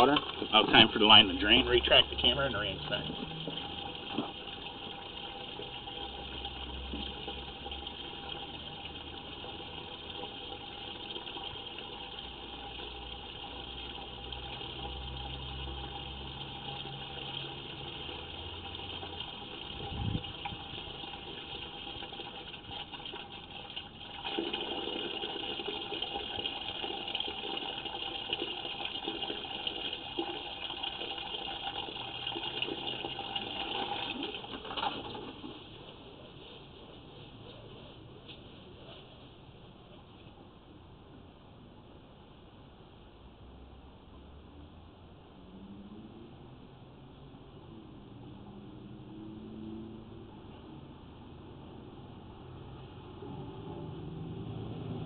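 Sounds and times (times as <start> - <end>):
running water rushing: 0.0 - 35.7.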